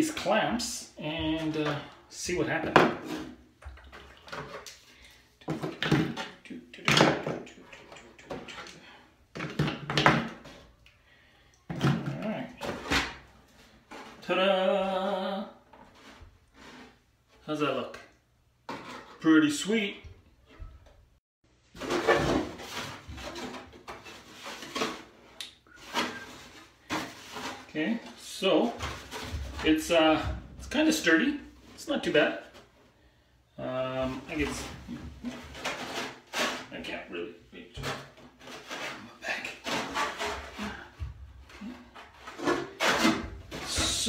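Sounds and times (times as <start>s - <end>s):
plastic handling: 21.7s - 30.5s.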